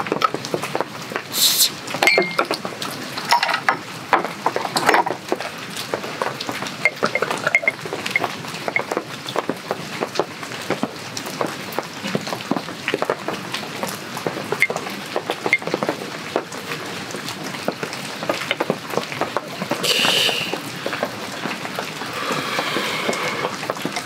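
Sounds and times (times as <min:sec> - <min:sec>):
heavy rain dripping: 0:00.0 - 0:24.0
splashing hiss: 0:01.3 - 0:01.8, 0:19.8 - 0:21.4, 0:22.0 - 0:23.7
foam fizzing: 0:01.3 - 0:02.1, 0:19.5 - 0:24.0.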